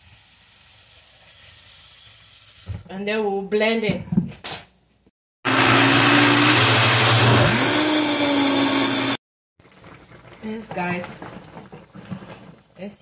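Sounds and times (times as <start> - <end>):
blender grinding: 5.5 - 9.2.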